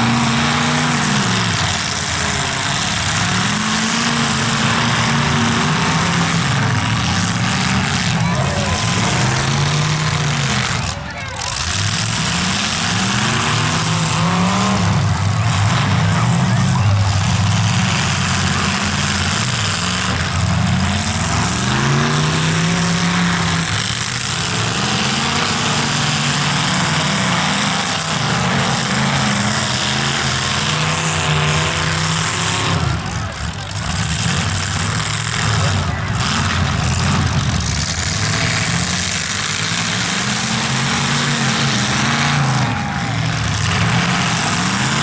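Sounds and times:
car engines revving hard: 0.0s - 45.0s
loud exhaust din: 0.0s - 45.0s.

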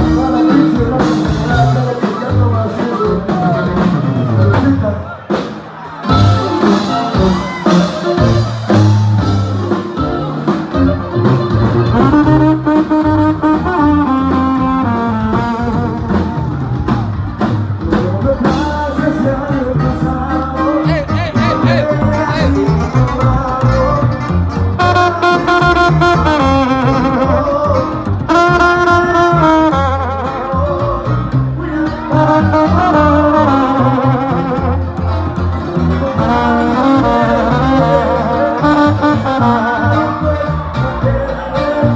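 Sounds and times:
guitar: 0.0s - 41.9s
brass horns playing: 6.1s - 16.3s, 20.6s - 31.0s, 31.6s - 41.0s
plucked upright bass: 6.1s - 41.9s.

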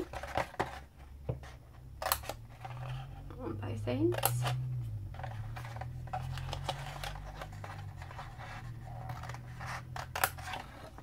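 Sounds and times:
low steady hum: 0.0s - 11.0s
card crackling: 4.1s - 11.0s.

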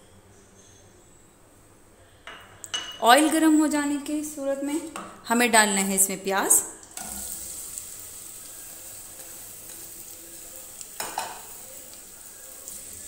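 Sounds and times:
onions sizzling in oil: 7.0s - 13.0s.

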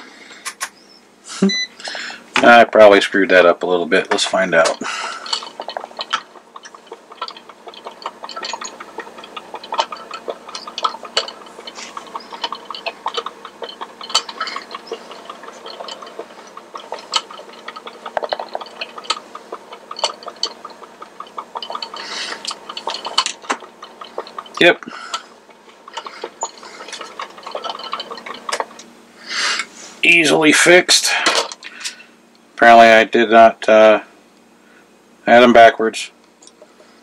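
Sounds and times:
mechanism ticking clicks: 1.8s - 29.0s, 36.2s - 37.0s
small motor hum: 4.8s - 27.8s.

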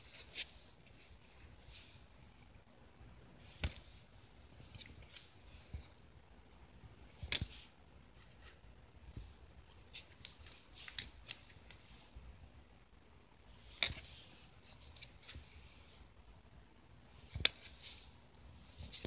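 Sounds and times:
cards flicking and snapping: 3.5s - 4.0s, 7.2s - 7.6s.

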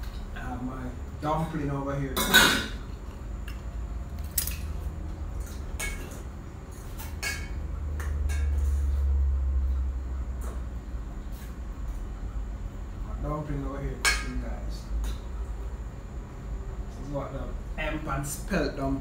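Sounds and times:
utensils clinking on pots: 2.2s - 3.0s, 5.4s - 6.2s, 6.8s - 8.6s.

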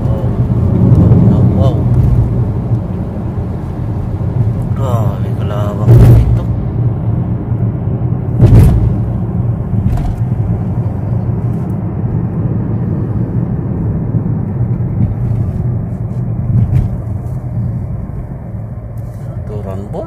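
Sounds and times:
car cabin road drone: 0.0s - 20.0s
sharp knock: 8.4s - 9.1s.

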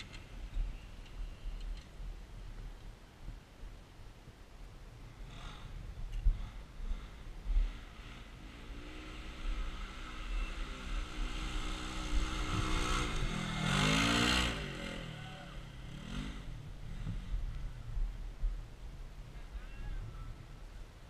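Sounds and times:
engine revving: 6.9s - 17.2s.

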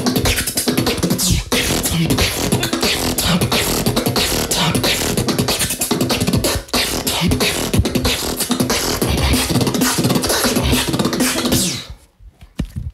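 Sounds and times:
beatboxing: 0.0s - 12.1s.

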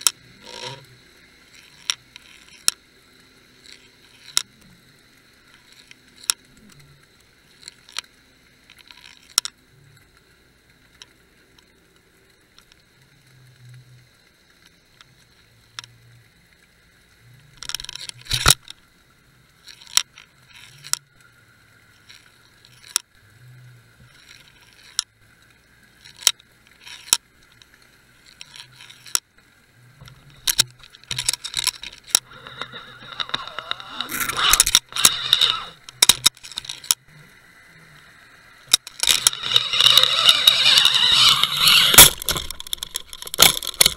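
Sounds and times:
underwater clicks and knocks: 30.0s - 37.2s, 38.7s - 43.9s
rattling bursts: 30.4s - 37.0s, 38.7s - 43.9s.

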